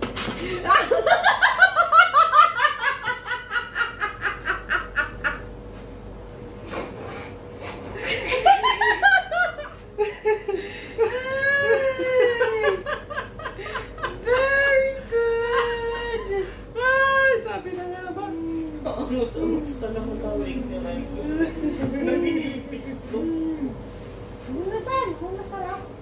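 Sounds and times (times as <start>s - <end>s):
man and woman laughing: 0.4s - 5.5s, 7.8s - 17.5s, 21.2s - 22.6s.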